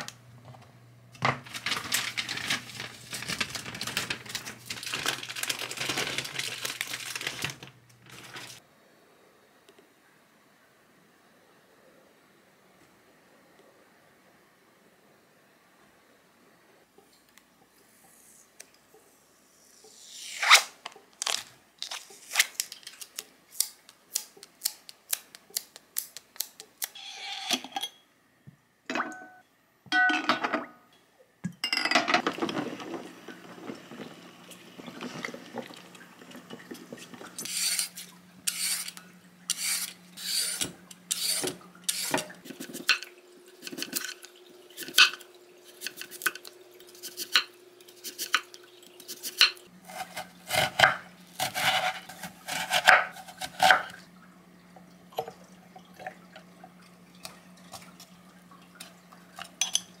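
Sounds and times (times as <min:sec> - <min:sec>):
glass jars clinking: 0:59.6 - 1:00.0.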